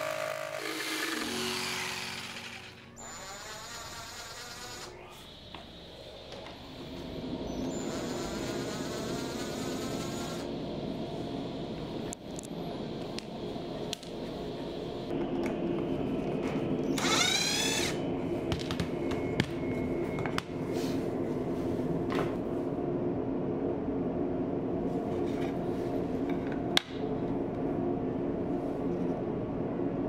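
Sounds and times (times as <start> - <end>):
impact driver motor whine: 0.0 - 5.6, 16.9 - 18.0
steady low hum: 0.0 - 30.0.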